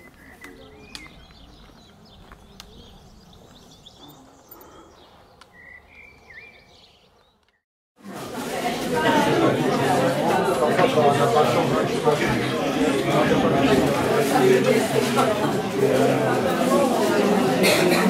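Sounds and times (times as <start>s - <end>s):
small birds chirping: 0.0s - 7.6s.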